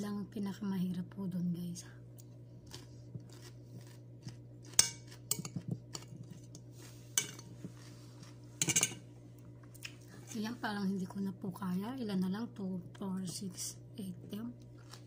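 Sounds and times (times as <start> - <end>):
steady low hum: 0.0 - 15.0
metal spoon clinking on plate: 8.6 - 9.0.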